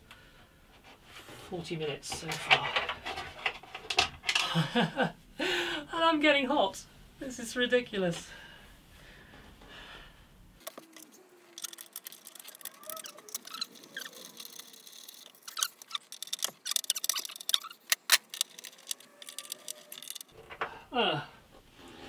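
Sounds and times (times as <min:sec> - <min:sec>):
person speaking: 0:01.5 - 0:03.0
screwdriver clicking and scraping bolts: 0:10.6 - 0:20.4.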